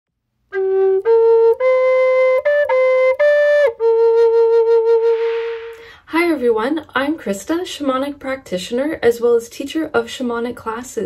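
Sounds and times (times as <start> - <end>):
wooden flute melody: 0.5 - 5.8.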